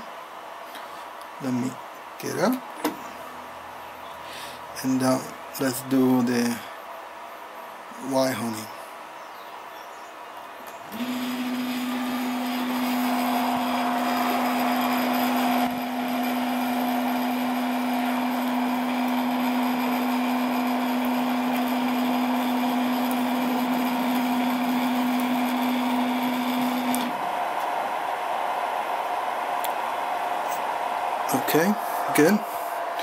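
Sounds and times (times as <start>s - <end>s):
stepper motor whine: 10.8s - 31.8s.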